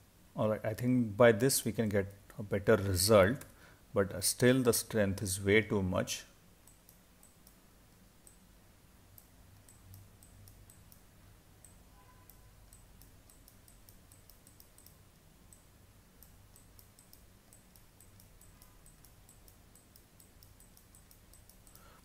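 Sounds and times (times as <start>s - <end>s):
low room hum: 0.0s - 22.0s
faint computer mouse clicks: 11.6s - 22.0s.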